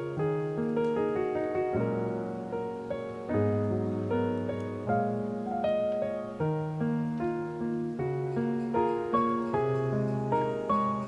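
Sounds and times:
piano melody: 0.0 - 11.0.

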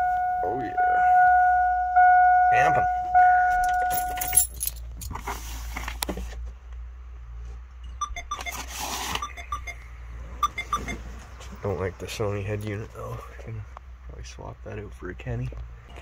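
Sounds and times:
dashboard warning chime: 0.0 - 4.6, 7.8 - 11.1.

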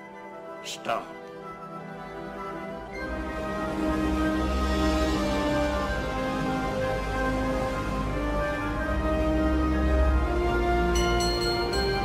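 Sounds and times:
orchestral music with sustained notes: 0.0 - 12.0
storm wind and sea spray hiss: 3.2 - 10.7.

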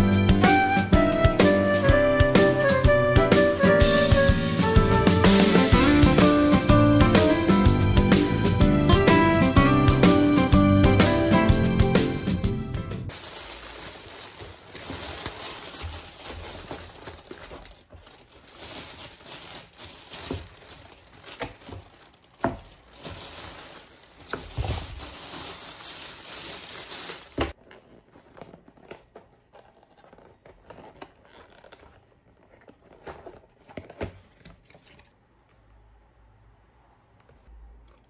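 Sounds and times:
packaging crinkling and tearing: 13.1 - 35.2.

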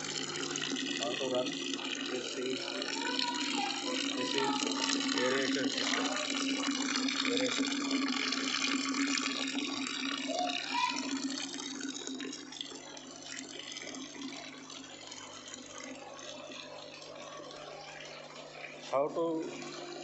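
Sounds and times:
water bubbling with aeration: 0.0 - 20.0
water pouring into a bucket: 0.0 - 20.0.

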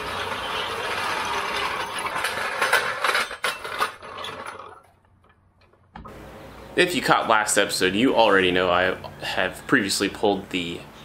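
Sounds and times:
floor jack clanks: 0.0 - 4.9
floor jack rattling on concrete: 0.0 - 4.9.

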